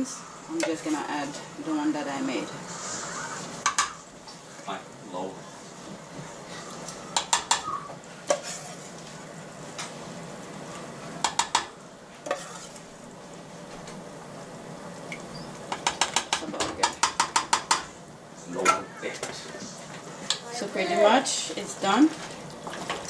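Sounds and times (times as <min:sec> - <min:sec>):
low sizzle of simmering pot: 0:00.0 - 0:23.0
ladle tapping pot: 0:07.2 - 0:07.7, 0:11.2 - 0:12.5, 0:15.1 - 0:17.9.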